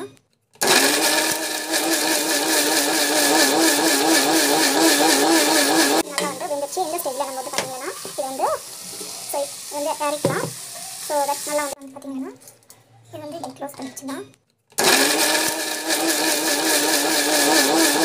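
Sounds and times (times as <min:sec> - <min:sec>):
mixer grinder running: 0:00.6 - 0:11.8, 0:14.8 - 0:18.0
vegetables sizzling in a pan: 0:00.6 - 0:12.0, 0:14.8 - 0:18.0
person talking: 0:01.8 - 0:14.4
spatula stirring: 0:02.6 - 0:11.8.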